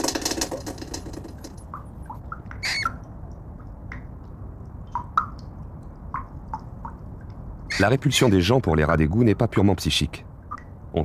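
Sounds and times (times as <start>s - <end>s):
rats squeaking: 2.6s - 3.0s, 7.7s - 8.0s.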